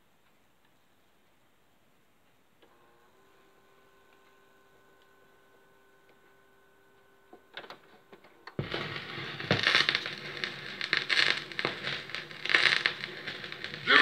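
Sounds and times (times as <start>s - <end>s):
vinyl record crackle and pops: 3.8s - 14.0s.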